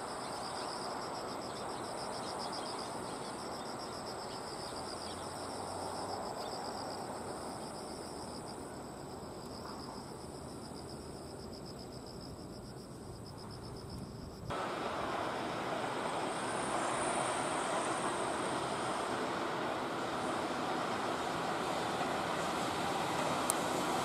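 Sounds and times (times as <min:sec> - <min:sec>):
insects trilling: 0:00.0 - 0:24.0
steady outdoor rush: 0:14.2 - 0:24.0
electric train running: 0:14.5 - 0:24.0.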